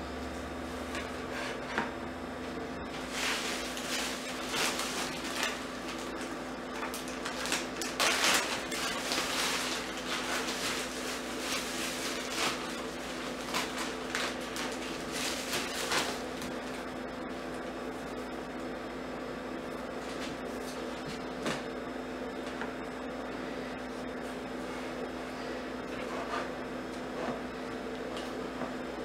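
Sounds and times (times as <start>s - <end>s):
plastic packaging crinkling: 3.0s - 16.5s.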